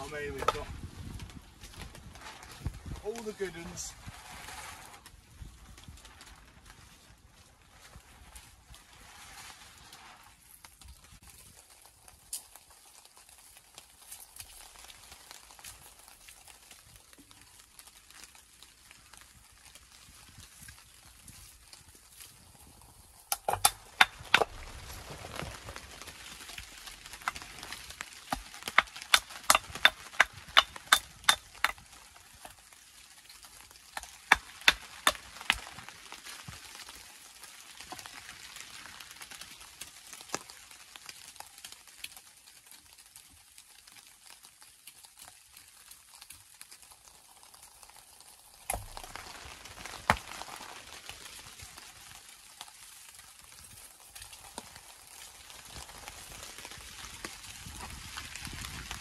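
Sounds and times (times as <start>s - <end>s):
clacks of strikes on stone: 23.3s - 24.5s, 28.3s - 31.8s, 34.0s - 35.6s.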